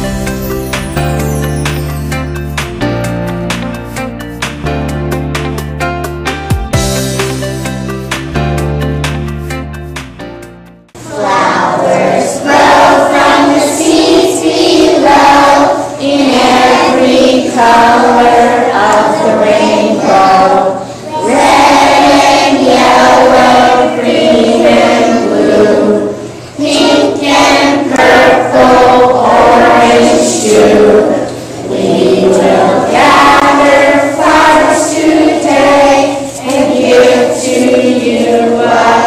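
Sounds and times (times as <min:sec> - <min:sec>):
children singing together: 0:11.0 - 0:39.0.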